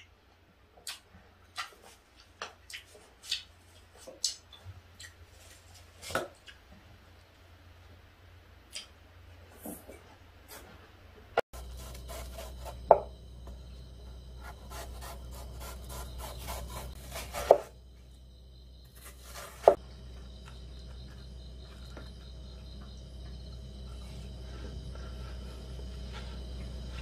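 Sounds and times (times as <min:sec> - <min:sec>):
knife slicing watermelon: 0:11.6 - 0:13.1, 0:14.4 - 0:17.8, 0:18.8 - 0:19.8.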